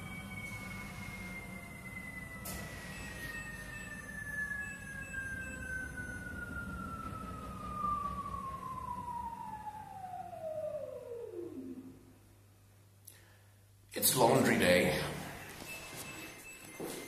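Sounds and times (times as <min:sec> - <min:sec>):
washing machine motor whine: 0:00.0 - 0:12.2
low drum rumble: 0:04.5 - 0:11.1.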